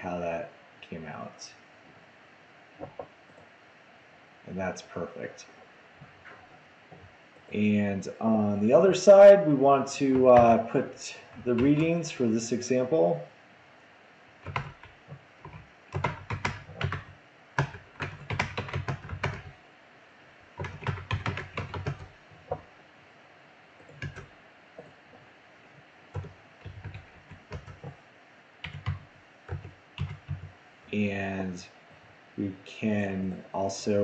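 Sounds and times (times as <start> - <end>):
typing on computer keyboard: 14.4 - 19.5, 20.6 - 22.7, 23.8 - 24.9, 26.1 - 28.0, 28.6 - 30.5.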